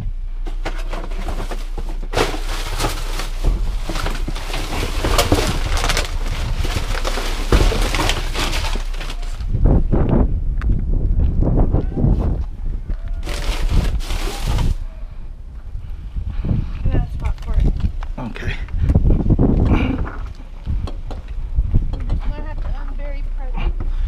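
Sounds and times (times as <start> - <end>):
plastic bags and bottles crinkling: 0.5 - 9.6, 13.2 - 14.8.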